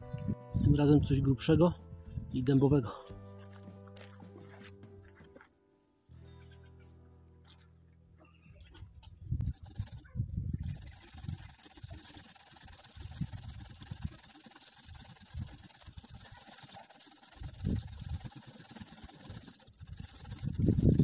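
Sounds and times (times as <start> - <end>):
saw rasping through branch: 9.5 - 21.0.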